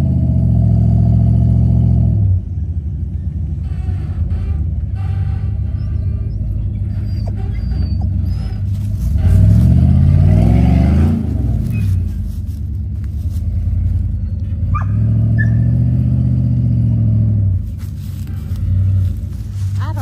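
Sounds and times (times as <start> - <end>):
off-road vehicle engine: 0.0 - 20.0
short high squeak: 3.7 - 9.5, 11.7 - 12.2.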